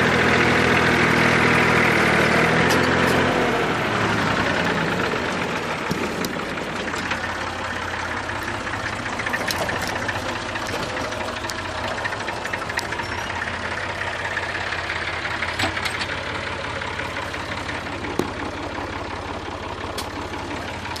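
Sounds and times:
tractor diesel engine running: 0:00.0 - 0:21.0
sharp clicks and rattles: 0:15.3 - 0:16.7.

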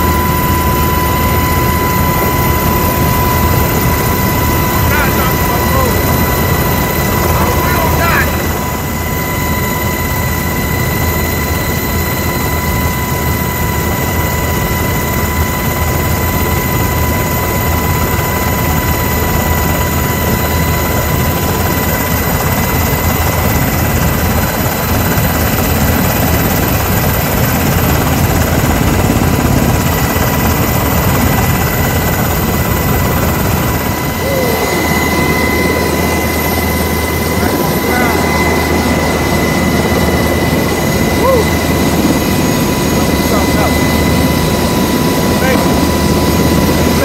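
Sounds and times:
helicopter rotor and engine drone: 0:00.0 - 0:47.0
high whine: 0:28.0 - 0:47.0.

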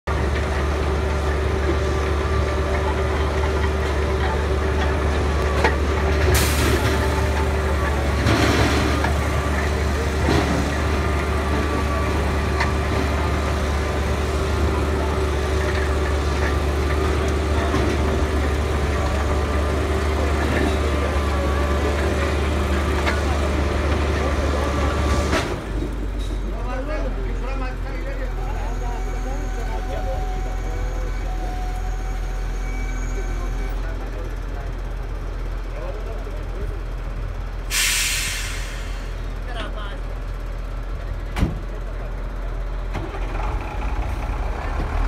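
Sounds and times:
diesel engine and conveyors droning: 0:00.0 - 0:45.0
short hiss: 0:37.7 - 0:39.1.

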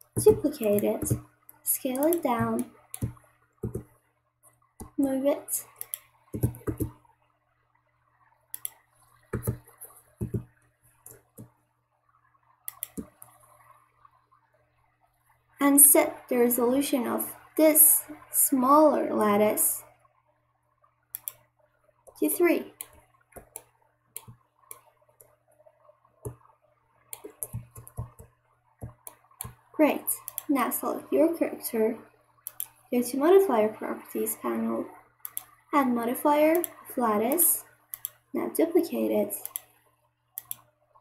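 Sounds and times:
faint steady hum: 0:00.0 - 0:41.0
mouse and keyboard clicks: 0:01.9 - 0:03.9, 0:05.7 - 0:07.0, 0:09.4 - 0:10.5, 0:12.7 - 0:13.3, 0:21.2 - 0:21.4, 0:27.2 - 0:29.6, 0:30.2 - 0:30.5, 0:32.4 - 0:32.7, 0:35.2 - 0:35.5, 0:36.5 - 0:38.2, 0:39.4 - 0:39.7, 0:40.4 - 0:40.7
soft wet clicks: 0:05.6 - 0:07.0, 0:08.5 - 0:11.6, 0:12.6 - 0:13.6, 0:21.2 - 0:26.5, 0:27.1 - 0:29.6, 0:30.2 - 0:30.5, 0:32.4 - 0:32.9, 0:35.2 - 0:35.6, 0:36.5 - 0:38.3, 0:39.4 - 0:39.8, 0:40.4 - 0:40.7.

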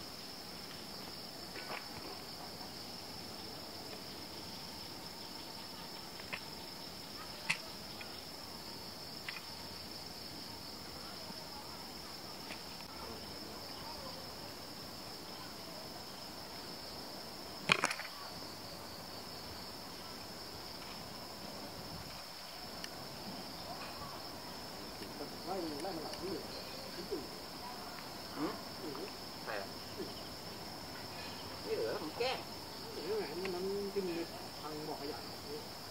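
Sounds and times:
high-pitched insect chorus: 0:00.0 - 0:35.9
sharp snaps: 0:07.4 - 0:08.1, 0:17.6 - 0:18.2.

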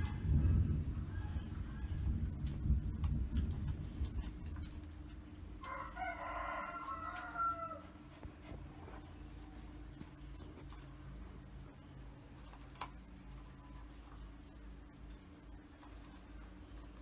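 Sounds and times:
rooster crowing: 0:00.0 - 0:02.4, 0:05.6 - 0:08.0.

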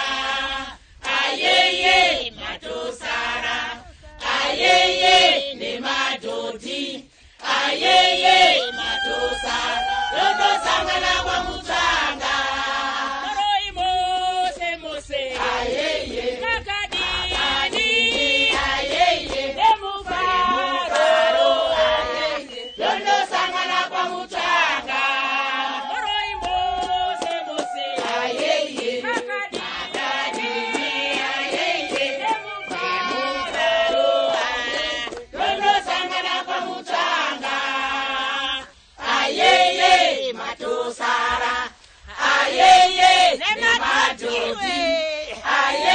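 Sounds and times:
women singing in chorus: 0:00.0 - 0:45.9.

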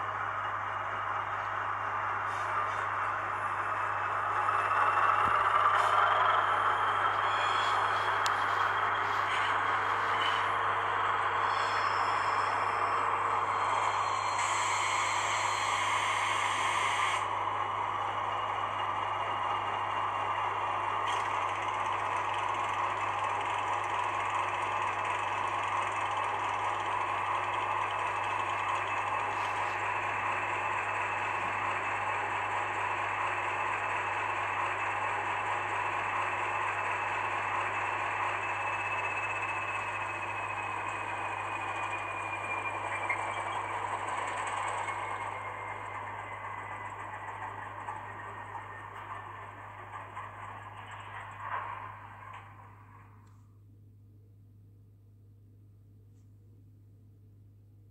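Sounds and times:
diesel engine sound from small speaker: 0:00.0 - 0:54.2.

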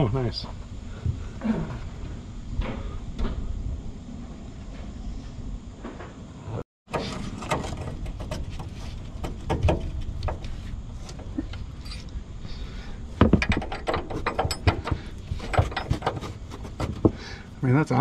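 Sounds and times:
metal knocks: 0:06.9 - 0:11.3, 0:13.2 - 0:17.2
wrenches clinking and scraping on bolt: 0:06.9 - 0:12.1, 0:13.2 - 0:17.2.

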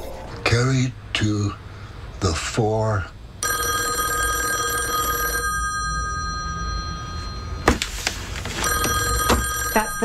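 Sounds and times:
telephone bell ringing: 0:03.4 - 0:07.7, 0:08.5 - 0:10.0.

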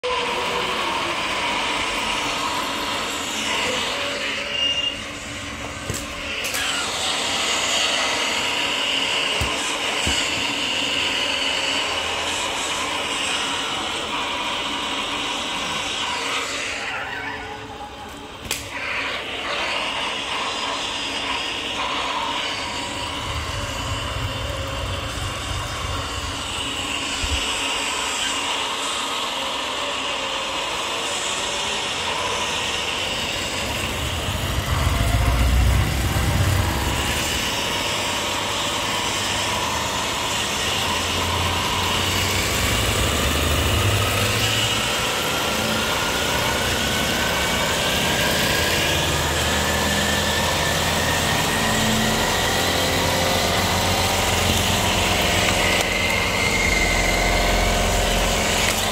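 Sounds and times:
whine rising in pitch: 0:00.0 - 0:58.9
truck engine running: 0:22.7 - 0:27.1, 0:31.8 - 0:58.9
loud low rumble: 0:33.4 - 0:38.2.

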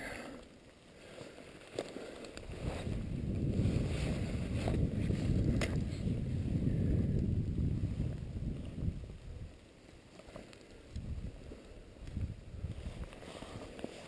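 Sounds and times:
footsteps on brushy slope: 0:01.0 - 0:06.2, 0:09.9 - 0:14.0.

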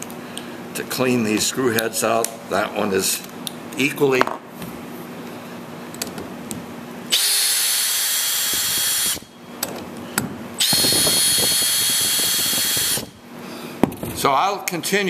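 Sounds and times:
cordless drill whine: 0:07.1 - 0:09.3, 0:10.6 - 0:13.2.

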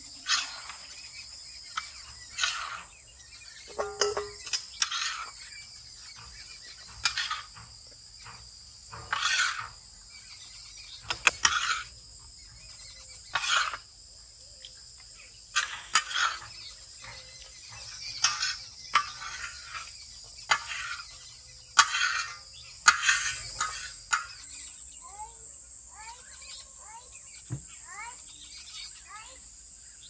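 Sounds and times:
insects droning: 0:00.0 - 0:30.0
metal spatula scraping iron pan: 0:00.2 - 0:00.9, 0:01.8 - 0:02.9, 0:03.6 - 0:05.4, 0:07.0 - 0:07.6, 0:09.0 - 0:09.8, 0:11.1 - 0:11.9, 0:13.3 - 0:13.9, 0:15.5 - 0:24.5.

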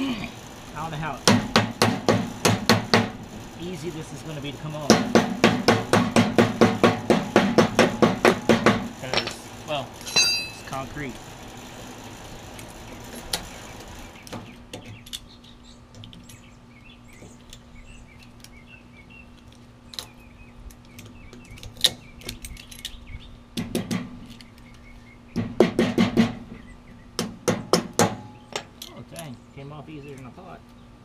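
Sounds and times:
metal clicks and clinks: 0:10.0 - 0:10.8
sharp metal taps: 0:10.0 - 0:10.8, 0:27.2 - 0:28.8.

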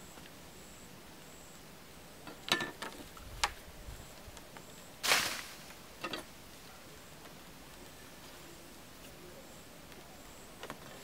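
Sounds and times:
bamboo slats knocking and creaking: 0:02.2 - 0:03.6, 0:05.0 - 0:06.3
rustling swish: 0:05.0 - 0:05.7.

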